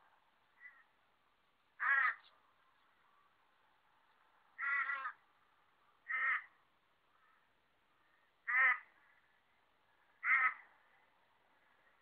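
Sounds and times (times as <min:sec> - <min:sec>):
crow cawing: 0:00.6 - 0:00.9, 0:01.8 - 0:02.2, 0:04.6 - 0:05.2, 0:06.0 - 0:06.6, 0:08.1 - 0:09.2, 0:10.2 - 0:10.7.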